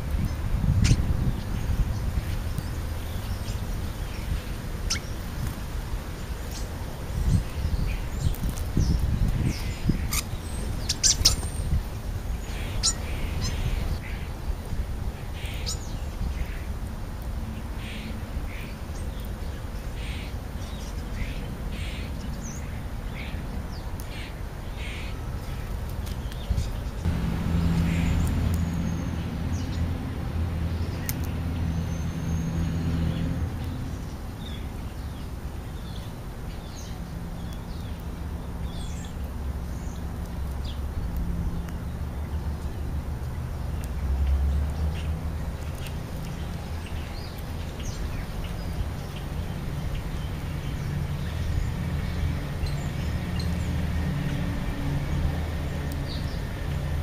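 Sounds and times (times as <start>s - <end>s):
starlings calling and clicking: 0.0s - 57.0s
low steady hum: 25.2s - 57.0s.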